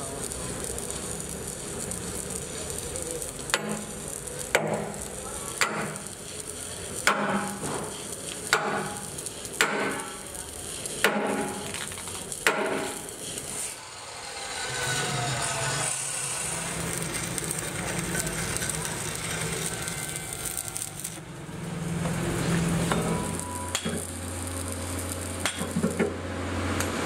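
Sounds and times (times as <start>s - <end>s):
sledgehammer striking steel: 5.6s - 6.0s, 7.0s - 7.9s, 8.5s - 9.0s, 9.6s - 10.1s, 11.0s - 11.7s, 12.4s - 13.0s.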